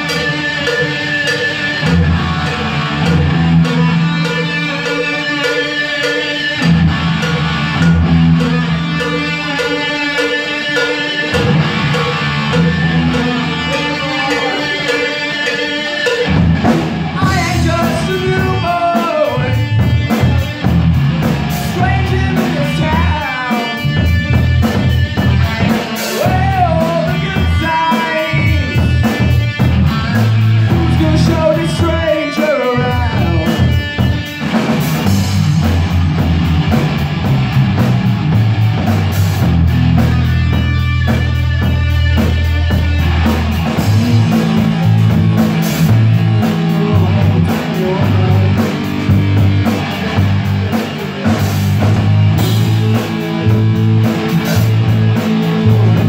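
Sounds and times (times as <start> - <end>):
bass guitar: 0.0 - 56.0
drum kit: 0.0 - 56.0
electric guitar: 0.0 - 56.0
person singing: 12.6 - 16.4, 17.1 - 20.5, 21.6 - 24.1, 25.2 - 34.1, 43.6 - 49.2.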